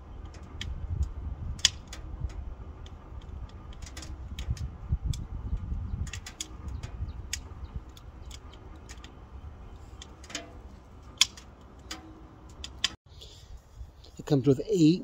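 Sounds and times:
wood fire crackling: 0:00.0 - 0:13.0
sharp pops from fire: 0:00.2 - 0:05.3, 0:09.8 - 0:13.0.

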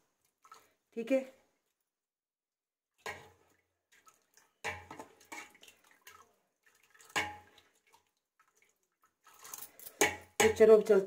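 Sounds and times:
ladle splashing in liquid: 0:00.0 - 0:01.0, 0:02.9 - 0:10.6
ladle knocking on pot: 0:07.2 - 0:07.5, 0:10.0 - 0:10.7.

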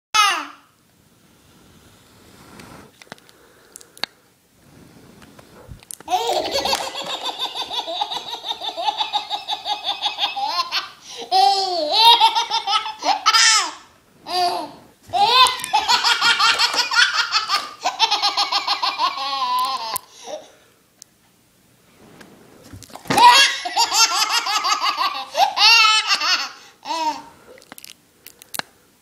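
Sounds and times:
baby laughing: 0:06.1 - 0:20.5, 0:23.1 - 0:27.3.

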